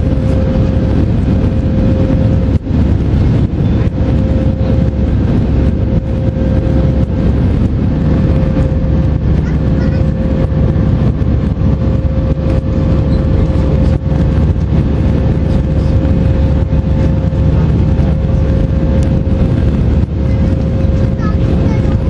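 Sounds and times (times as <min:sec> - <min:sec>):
jet engines roaring: 0:00.0 - 0:22.0
mid-pitched hum: 0:00.0 - 0:22.0.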